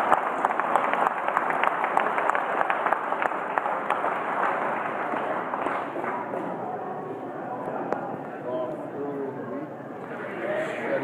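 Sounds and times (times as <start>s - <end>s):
crowd applauding: 0.0s - 6.6s.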